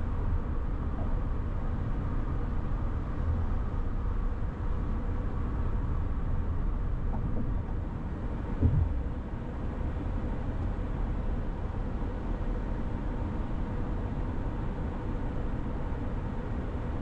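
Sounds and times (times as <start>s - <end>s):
car engine drone: 0.0s - 11.7s
tyre and road noise: 6.9s - 9.3s.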